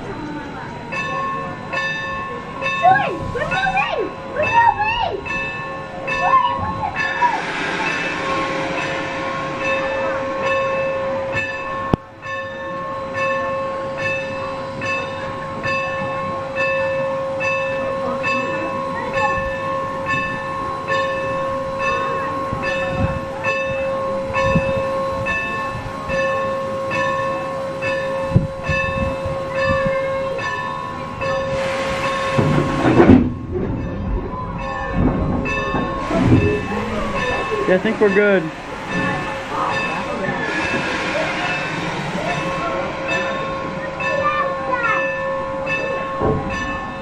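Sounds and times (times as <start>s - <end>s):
locomotive bell ringing: 0.0s - 47.0s
train running noise: 0.0s - 47.0s
steam hiss: 7.0s - 11.9s, 30.5s - 33.0s, 35.8s - 44.0s.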